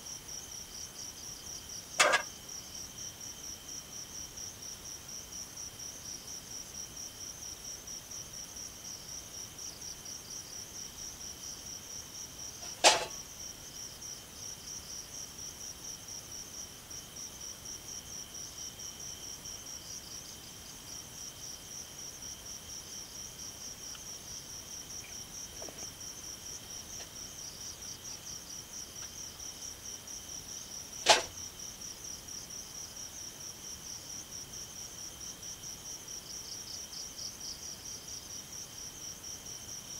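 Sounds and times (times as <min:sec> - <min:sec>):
crickets and insects trilling: 0:00.0 - 0:39.9
sharp knocks: 0:02.0 - 0:02.3, 0:31.0 - 0:31.3.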